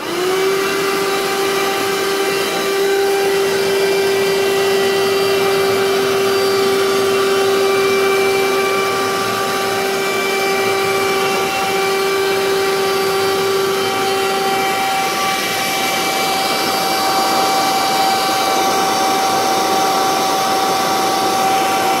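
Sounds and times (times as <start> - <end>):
handheld vacuum cleaner running: 0.0 - 22.0.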